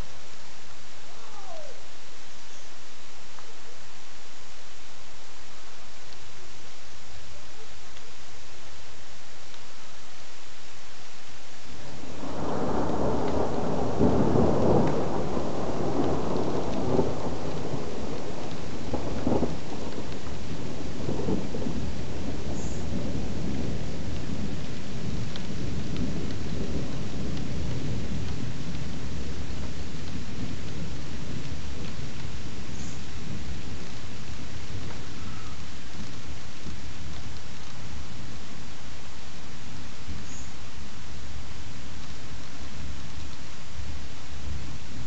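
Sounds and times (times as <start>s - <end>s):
thunder rumbling and cracking: 11.8s - 38.5s.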